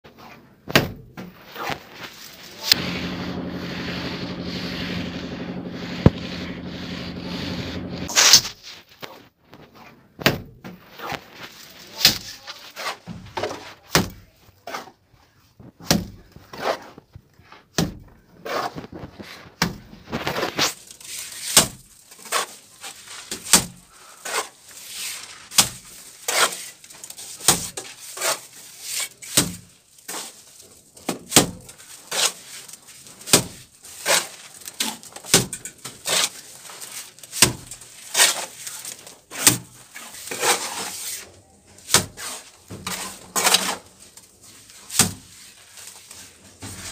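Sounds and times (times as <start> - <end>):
mortar slapping onto wall: 12.0 - 14.8, 15.8 - 16.8, 17.7 - 18.7, 19.6 - 30.3, 31.0 - 32.4, 33.2 - 41.2, 41.8 - 43.9, 44.8 - 45.6.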